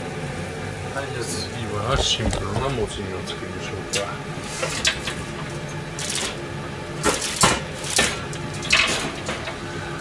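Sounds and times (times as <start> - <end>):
steady low hum: 0.0 - 7.0
metal cookware clattering on rack: 7.1 - 9.4.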